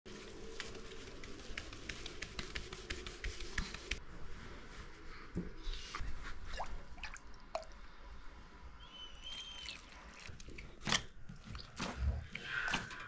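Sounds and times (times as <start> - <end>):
water pouring and splashing: 9.5 - 13.0.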